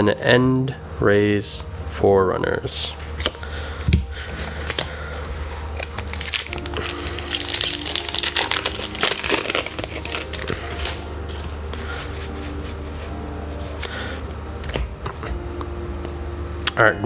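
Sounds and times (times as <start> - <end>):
cards sliding out: 4.3 - 5.0, 5.7 - 15.2
foil wrapper crinkling: 5.7 - 14.2.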